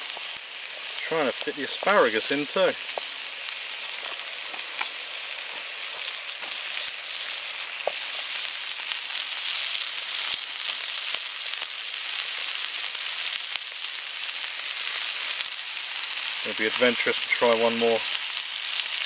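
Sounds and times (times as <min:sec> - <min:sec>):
steak sizzling in frying pan: 0:00.0 - 0:19.0
fat popping: 0:02.8 - 0:03.2, 0:04.0 - 0:06.8, 0:07.8 - 0:08.2.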